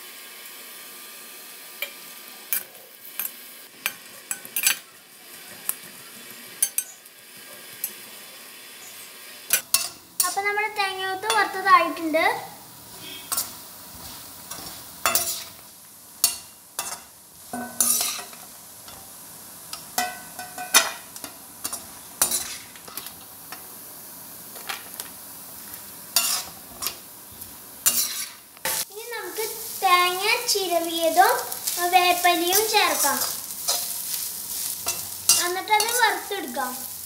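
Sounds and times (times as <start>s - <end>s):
food sizzling in oil: 0.0s - 37.0s
metal spoon scraping a pan: 9.5s - 10.6s, 13.0s - 15.6s, 16.2s - 19.1s, 19.7s - 23.2s, 26.2s - 27.0s, 27.8s - 28.8s, 31.6s - 36.2s.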